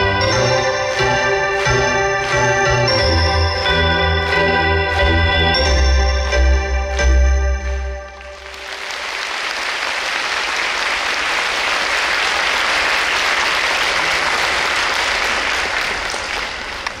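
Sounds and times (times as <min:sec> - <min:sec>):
audience applauding: 0:00.0 - 0:05.8, 0:07.6 - 0:17.0.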